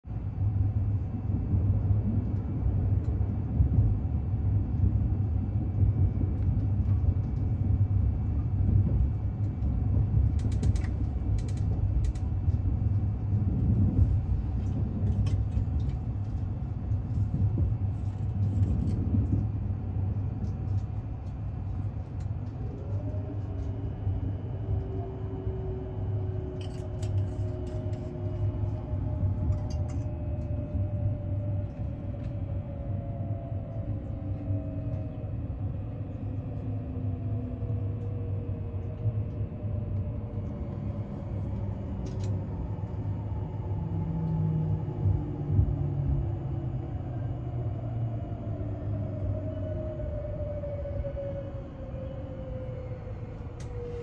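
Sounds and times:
wheels rumbling on rail: 0.0 - 54.0
creaks and clicks: 8.9 - 12.8, 26.3 - 30.8, 41.5 - 43.0, 53.4 - 54.0.

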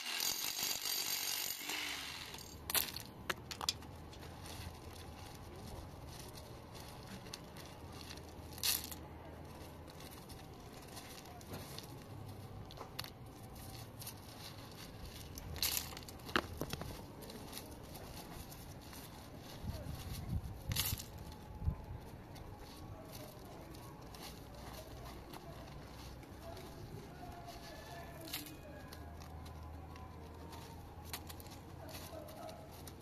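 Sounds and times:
concrete chunks crunching and clacking: 15.1 - 17.0.

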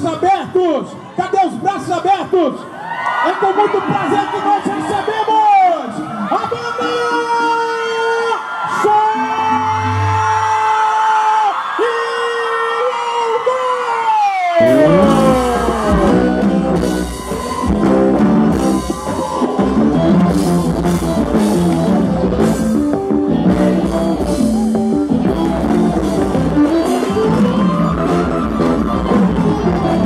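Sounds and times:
accordion: 14.6 - 30.0
drum kit: 14.6 - 30.0
electric bass: 14.6 - 30.0
electric guitar: 14.6 - 30.0
keytar melody: 14.6 - 30.0.

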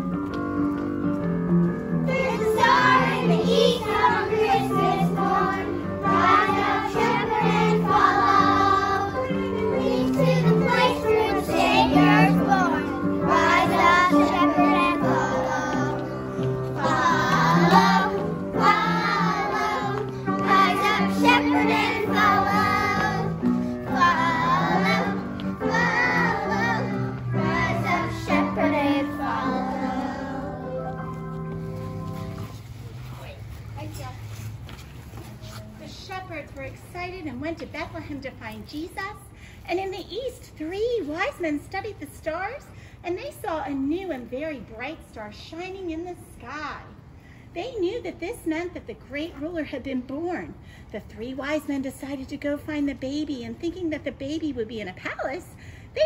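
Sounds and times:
children singing: 2.1 - 30.8.

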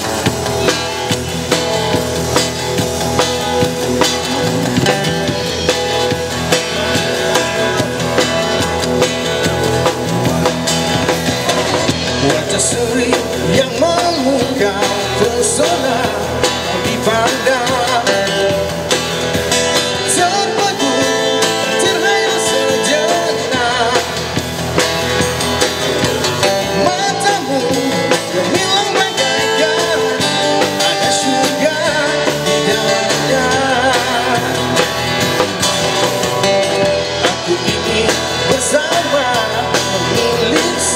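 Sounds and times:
acoustic-electric guitar: 0.0 - 40.9
bass guitar: 0.0 - 40.9
drum kit: 0.0 - 40.9
man singing through microphone: 12.0 - 18.8, 19.8 - 24.4, 26.5 - 35.0, 36.4 - 40.9.

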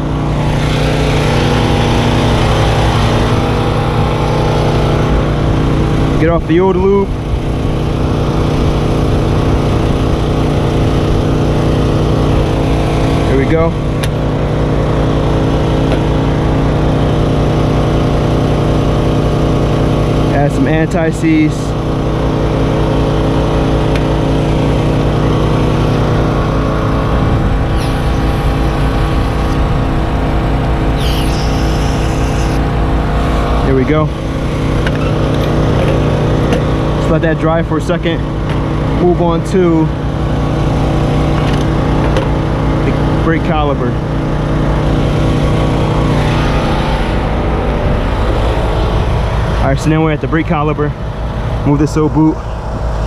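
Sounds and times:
small engine running: 0.0 - 53.0
aerosol spray hissing: 27.7 - 29.8.

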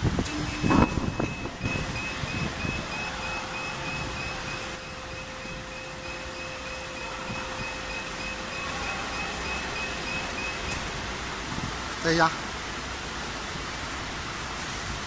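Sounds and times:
machine hum: 0.0 - 12.0
steady noise: 0.0 - 15.0.

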